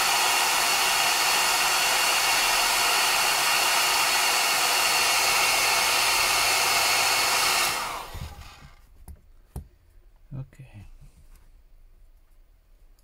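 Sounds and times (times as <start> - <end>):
hair dryer blowing: 0.0 - 8.8.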